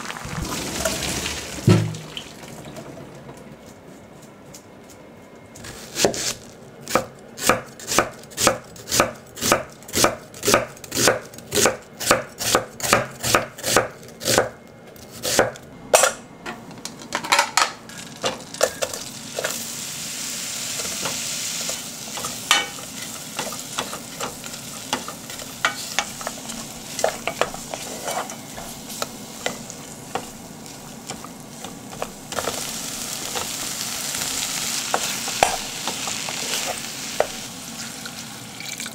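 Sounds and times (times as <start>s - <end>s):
onion sizzling in a pot: 0.0s - 2.7s, 17.9s - 38.9s
wooden spatula stirring: 23.0s - 32.5s.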